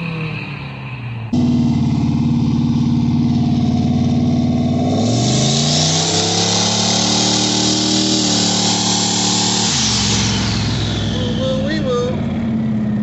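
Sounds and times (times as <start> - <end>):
car engine accelerating: 0.0 - 13.0
loud rushing hiss: 5.1 - 11.7.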